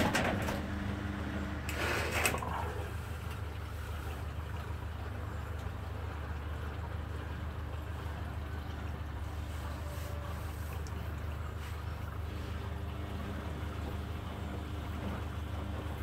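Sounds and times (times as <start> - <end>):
washing machine drum tumbling laundry: 0.0 - 3.4
low motor hum: 0.0 - 16.0
water sloshing: 1.7 - 16.0.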